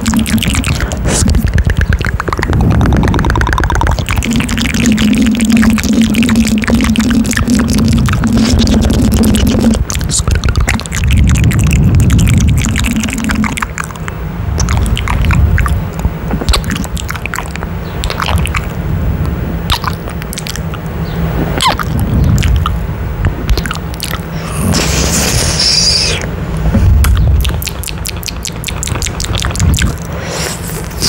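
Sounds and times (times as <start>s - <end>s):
wet lip smacks and kisses: 7.2s - 20.8s, 27.0s - 31.0s
low breathy rumble: 24.2s - 27.5s
breathy hiss: 24.3s - 26.3s.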